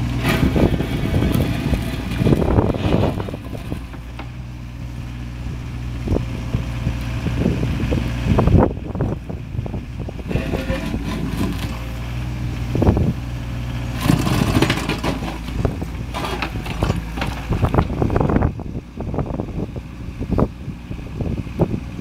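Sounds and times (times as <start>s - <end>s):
excavator engine running: 0.0s - 22.0s
bucket scraping mud on concrete: 0.2s - 4.3s, 10.3s - 11.9s.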